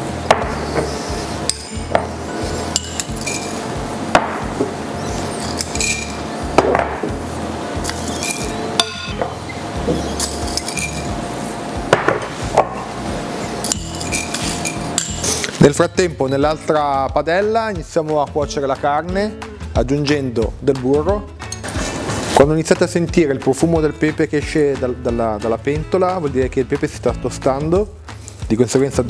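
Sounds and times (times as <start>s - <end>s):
background music: 0.0s - 29.0s
metal utensil clinking on glass: 2.7s - 3.6s, 5.4s - 6.2s, 7.9s - 9.2s, 10.2s - 11.1s, 13.6s - 15.5s.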